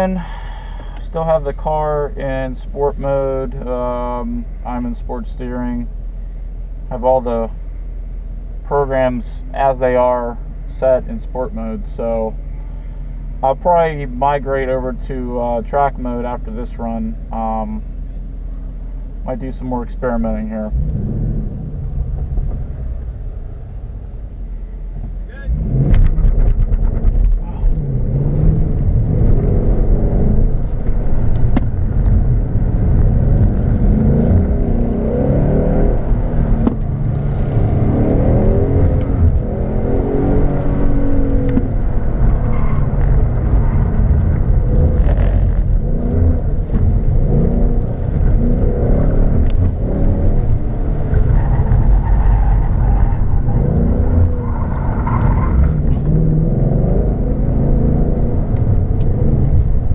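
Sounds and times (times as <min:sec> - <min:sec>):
car engine accelerating hard: 0:19.3 - 0:59.9.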